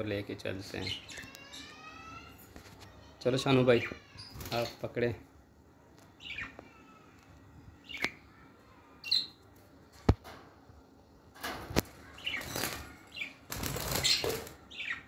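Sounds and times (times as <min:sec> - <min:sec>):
birds flapping wings in cage: 0:11.4 - 0:14.6.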